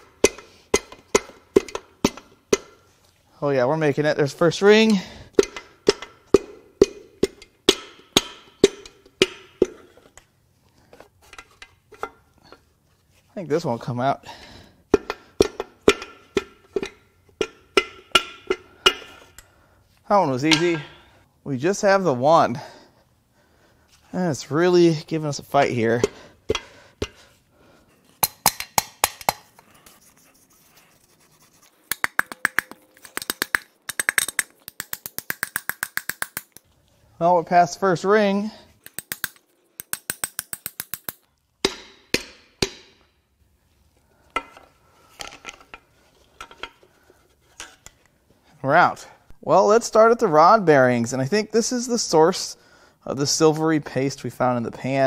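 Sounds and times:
hammer striking metal: 0:20.5 - 0:21.0, 0:38.9 - 0:43.1.

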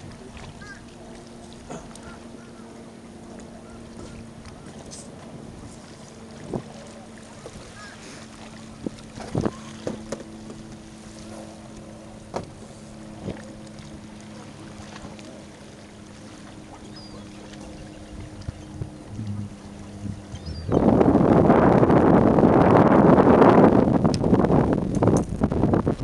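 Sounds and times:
waves lapping on rocky shore: 0:00.0 - 0:22.6
steady low hum: 0:00.0 - 0:26.0
wind on microphone: 0:03.7 - 0:10.1, 0:16.8 - 0:26.0.

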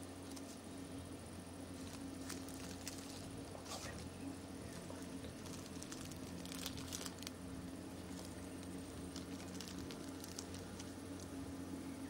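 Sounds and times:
low hum: 0:00.0 - 0:12.0
soft crackles and rustles: 0:01.7 - 0:11.4.

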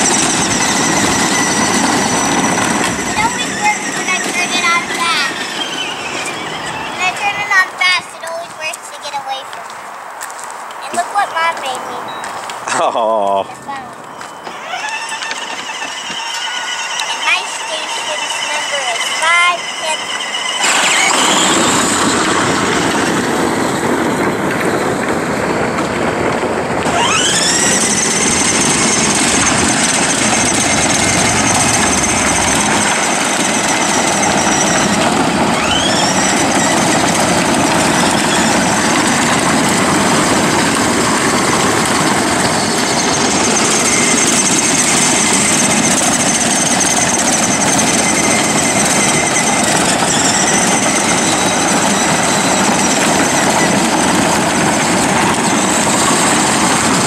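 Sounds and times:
vehicle motor whining: 0:00.0 - 0:09.2, 0:11.4 - 0:57.0.

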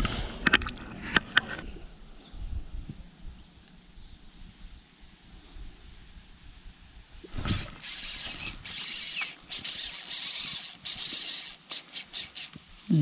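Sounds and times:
fishing reel whirring: 0:07.4 - 0:13.0.

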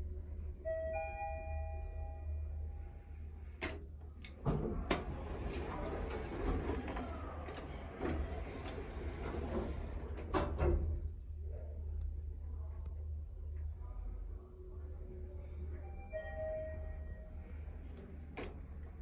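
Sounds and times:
elevator two-note chime: 0:00.6 - 0:02.7, 0:15.9 - 0:17.5.

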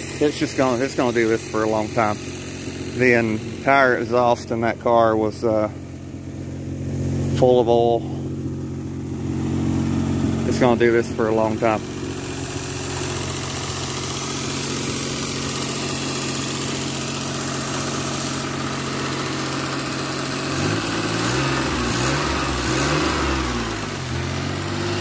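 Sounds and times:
car engine idling and revving: 0:00.0 - 0:25.0.

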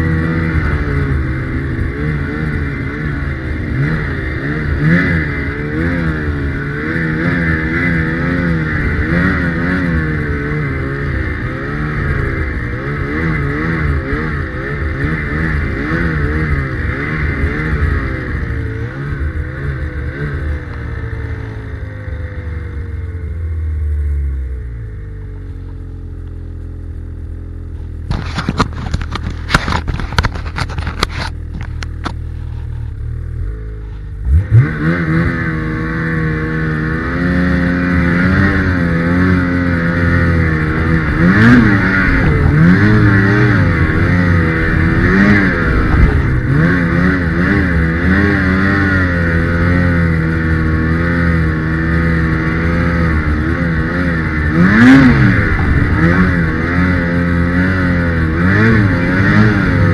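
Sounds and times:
snowmobile engine revving: 0:00.0 - 0:22.9, 0:32.9 - 0:59.9
sharp clicks and knocks: 0:28.0 - 0:32.2.

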